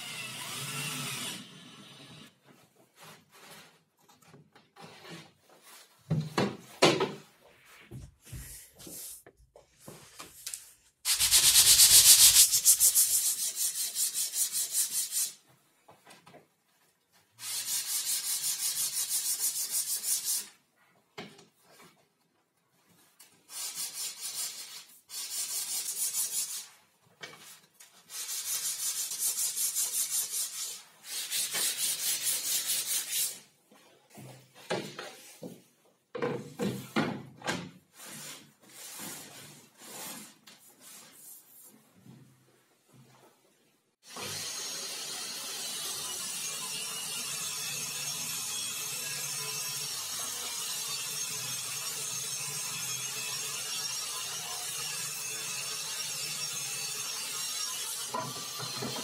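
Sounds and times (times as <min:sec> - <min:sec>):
hand rubbing on plywood: 0:11.1 - 0:13.6.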